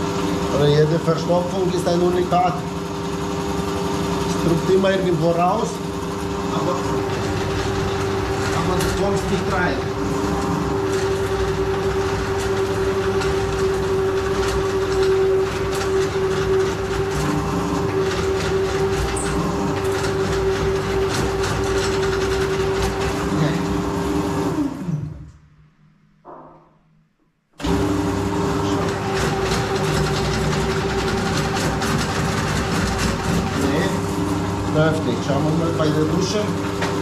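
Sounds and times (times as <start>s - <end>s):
drain cleaning machine motor hum: 0.0s - 25.4s, 27.6s - 37.0s
spinning cable rattling: 4.2s - 23.5s, 28.6s - 37.0s.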